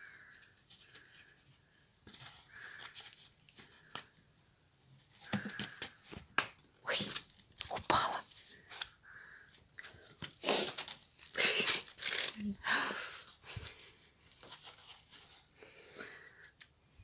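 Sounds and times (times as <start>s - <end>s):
crinkly toy rustling: 0.0s - 4.1s, 6.6s - 15.6s.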